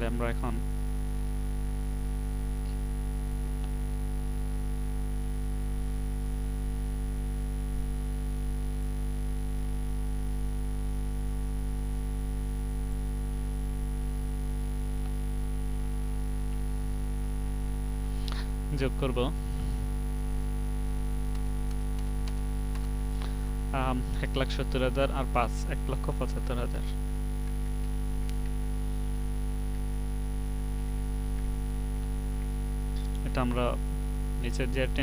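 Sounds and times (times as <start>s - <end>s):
electrical mains hum: 0.0s - 35.0s
thin high whine: 7.4s - 35.0s.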